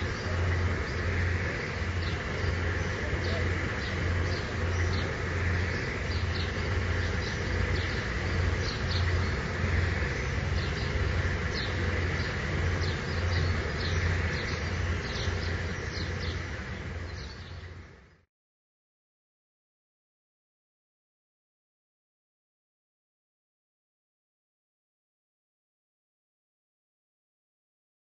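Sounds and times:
motorboat engine running: 0.0s - 18.0s
birds chirping: 0.0s - 18.2s.

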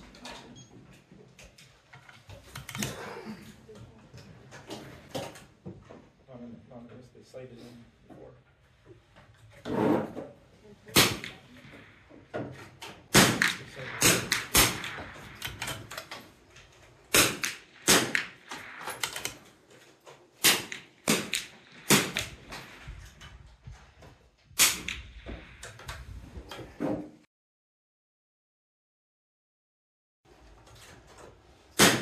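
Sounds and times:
rifle shots cracking: 10.9s - 23.2s, 24.6s - 25.6s, 31.8s - 32.0s.

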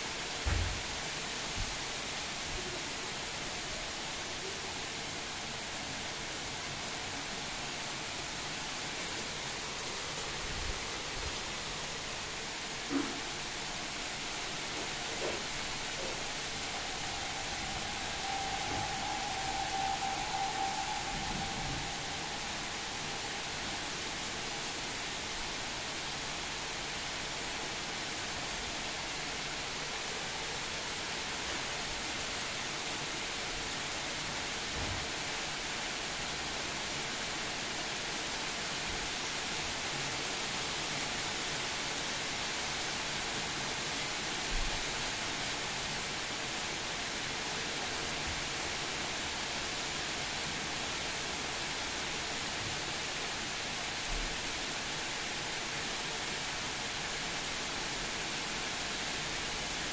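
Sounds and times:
heavy rain falling on trees: 0.0s - 59.9s
brief low bump: 0.4s - 0.8s.

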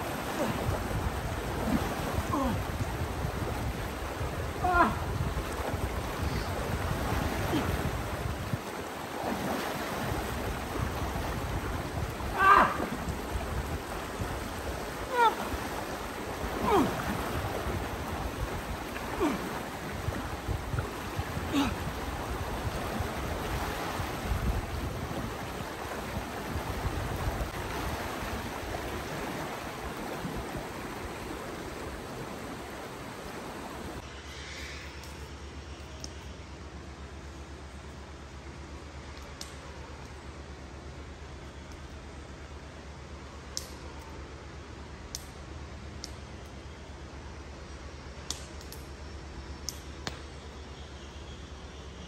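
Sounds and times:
splashing in water: 0.0s - 24.3s
river rushing over stones: 0.0s - 34.1s.

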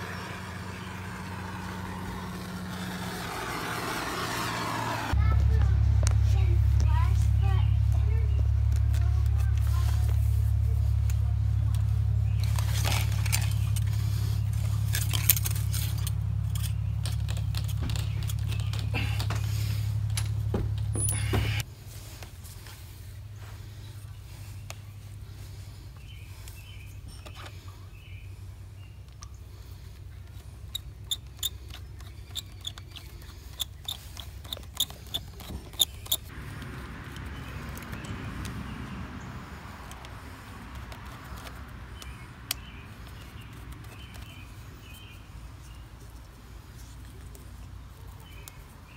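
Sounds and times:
steady low hum: 0.0s - 26.6s
steady low rumble: 0.0s - 26.8s
hose clamp screw clicking: 30.7s - 36.3s.

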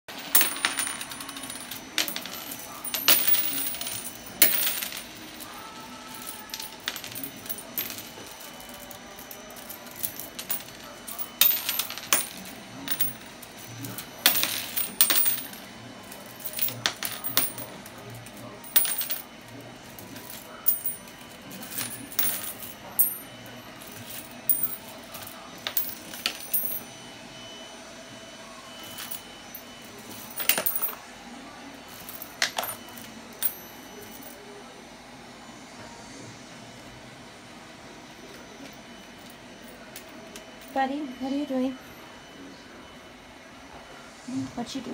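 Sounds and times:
coins clinking on wooden floor: 0.1s - 19.3s, 19.9s - 26.9s, 28.8s - 31.0s, 31.9s - 34.4s.

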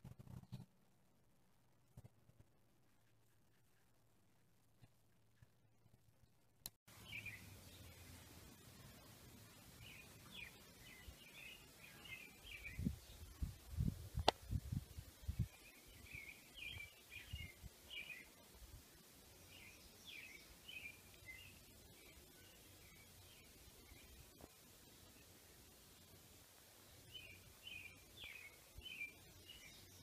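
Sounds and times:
outdoor background noise: 0.0s - 30.0s
small birds chirping: 6.2s - 30.0s.

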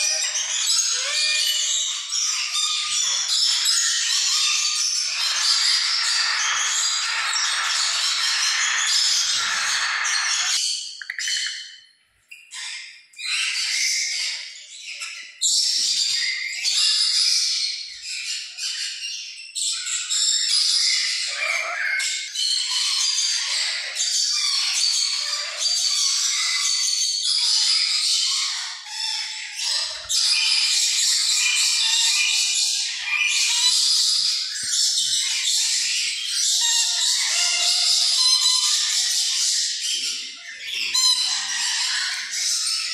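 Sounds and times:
parrots squawking: 0.0s - 11.6s, 20.9s - 26.7s, 27.4s - 39.7s, 40.5s - 42.9s
many birds chirping: 0.0s - 42.9s.

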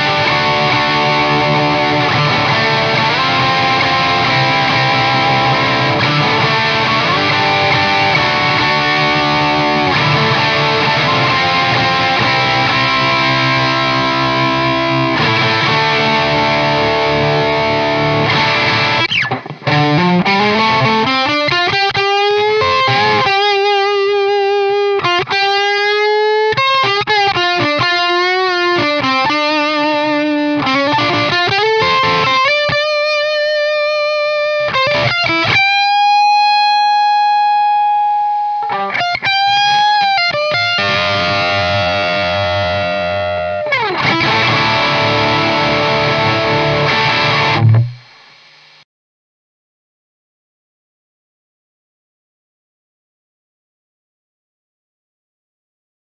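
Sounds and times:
distorted electric guitar: 0.0s - 48.8s.

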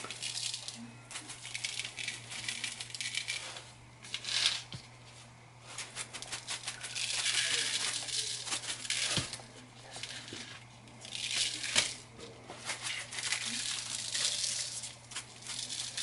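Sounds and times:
granules rattling in shaker jar: 0.0s - 4.8s, 5.7s - 16.0s
gloved hands rustling: 0.0s - 16.0s.

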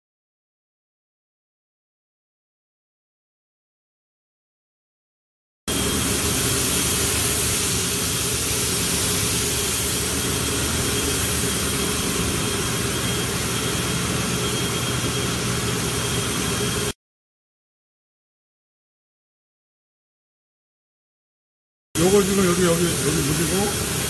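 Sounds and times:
compressed air hissing from nozzle: 5.7s - 14.3s, 22.6s - 24.0s.

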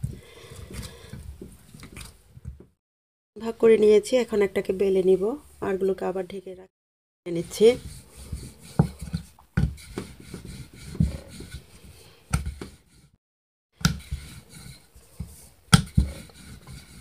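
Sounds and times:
rolling pin rolling dough on wood: 7.4s - 13.1s, 13.8s - 17.0s.

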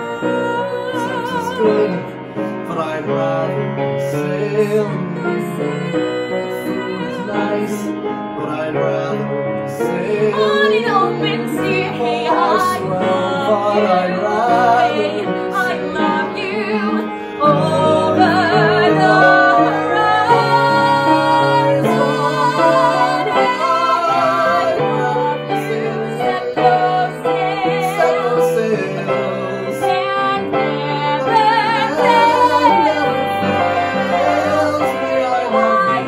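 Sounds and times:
piano accompaniment: 0.0s - 36.0s
woman singing with vibrato: 10.3s - 29.0s, 29.8s - 36.0s.

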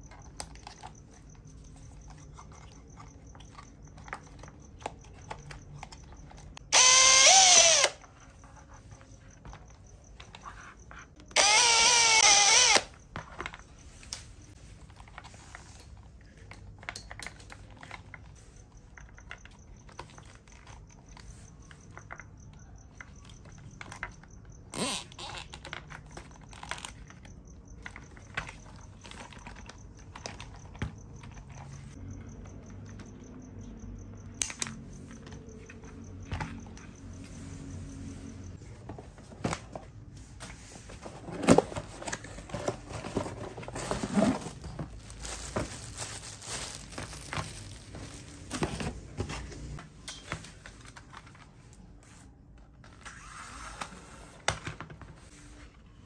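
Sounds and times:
cordless drill boring into plastic: 6.7s - 8.0s, 11.3s - 12.9s
cable tie zip: 24.7s - 25.4s.

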